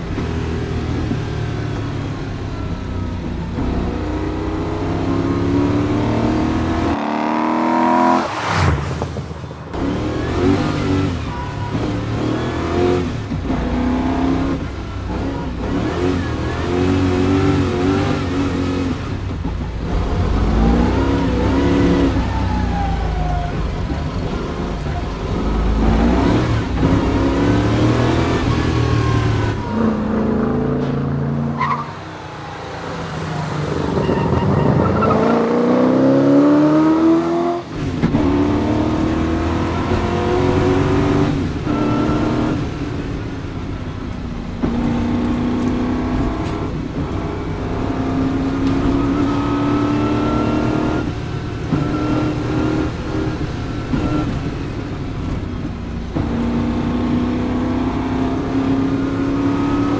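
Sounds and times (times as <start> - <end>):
car engine accelerating hard: 0.0 - 9.1, 9.7 - 59.9.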